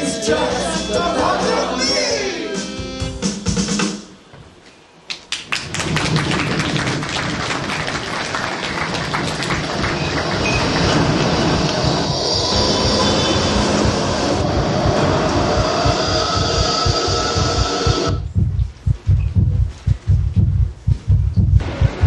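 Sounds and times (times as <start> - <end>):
song playing: 0.0 - 3.8
tram running on rails: 7.1 - 18.4.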